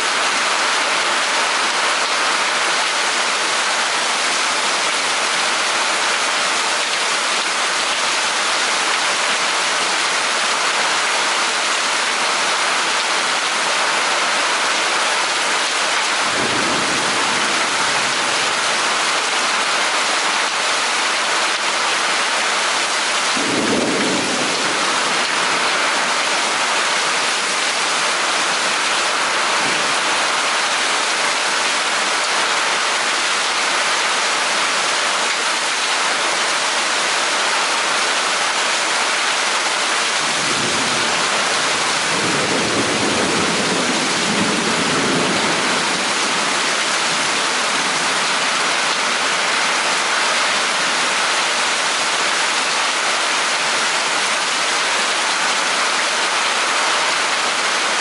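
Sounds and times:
steady rain pouring: 0.0s - 58.0s
low rumble of thunder: 16.2s - 18.4s, 23.3s - 25.7s, 40.3s - 46.3s.

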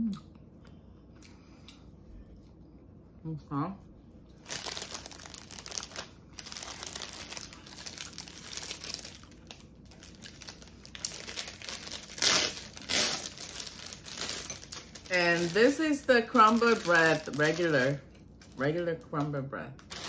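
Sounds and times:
plastic bag crinkling: 4.4s - 18.6s, 19.8s - 20.0s.

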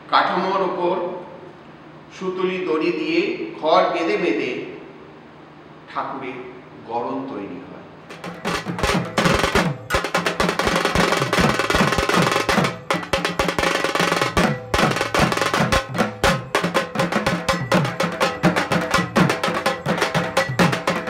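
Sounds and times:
fast rolling drumming: 8.1s - 21.0s
low drum notes sliding down: 8.1s - 21.0s.

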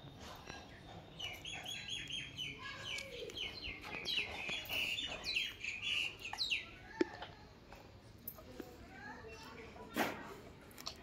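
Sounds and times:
small birds chirping: 0.0s - 7.5s.

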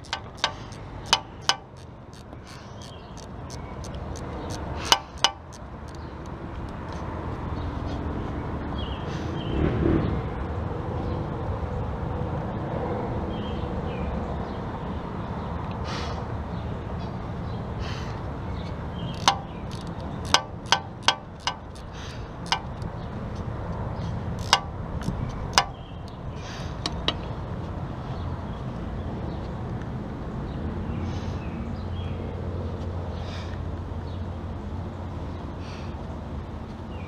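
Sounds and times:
wrench clicking on bolt: 0.0s - 6.8s, 19.1s - 22.9s, 24.4s - 26.2s
steady background hum: 0.0s - 37.0s.

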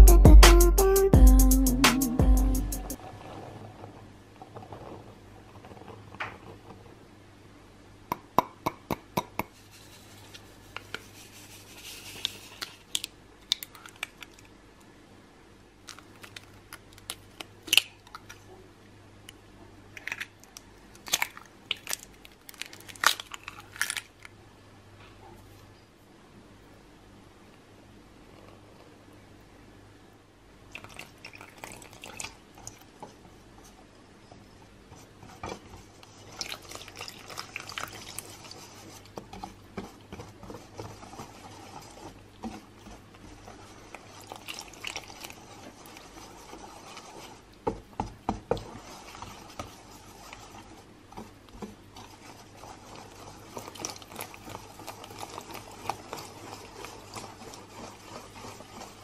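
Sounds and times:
whisk beating batter in metal bowl: 34.9s - 59.0s.

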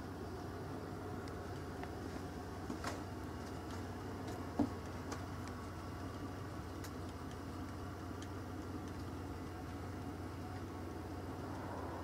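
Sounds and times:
steady low hum: 0.0s - 12.0s
faint irregular ticks: 0.2s - 2.3s, 3.3s - 12.0s.

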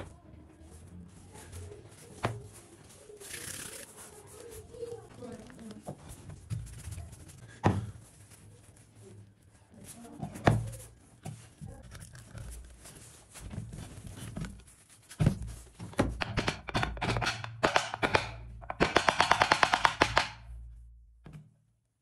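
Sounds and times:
wooden mallet knocking on wood: 16.0s - 20.6s.

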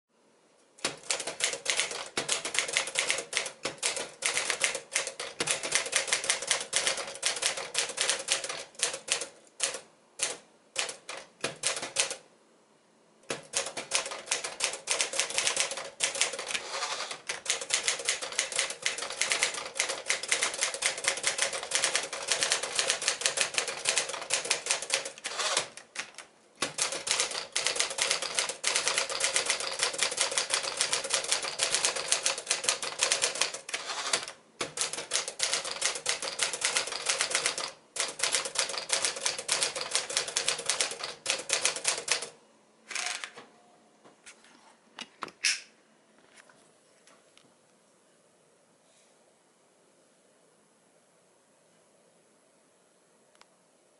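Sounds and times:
manual typewriter typing: 0.8s - 12.2s, 13.3s - 43.3s.

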